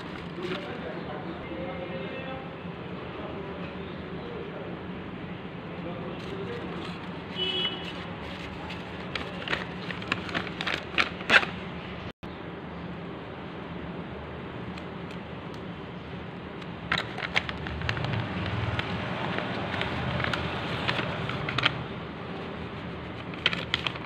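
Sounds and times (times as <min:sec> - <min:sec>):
paper rustling and crackling: 0:00.0 - 0:00.9, 0:06.2 - 0:11.6, 0:16.8 - 0:24.0
steady background hum: 0:00.0 - 0:24.0.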